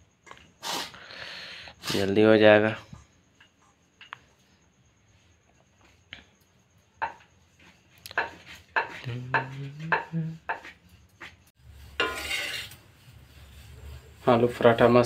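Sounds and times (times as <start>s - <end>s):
knife knocking on stone board: 8.2s - 11.3s
flatbread sizzling in oil: 11.2s - 15.0s.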